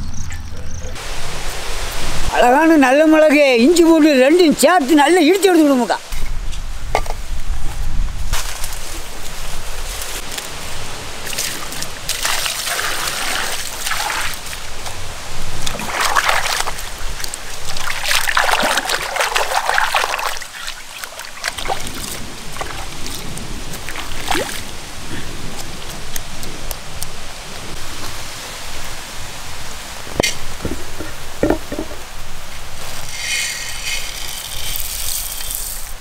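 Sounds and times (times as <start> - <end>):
water splashing in stone mortar: 11.2 - 14.6, 15.6 - 24.8.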